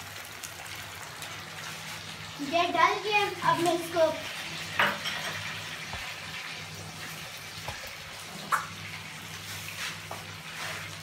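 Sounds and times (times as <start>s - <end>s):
food sizzling in frying pan: 0.0s - 11.0s
wooden spatula scraping pan: 9.4s - 11.0s.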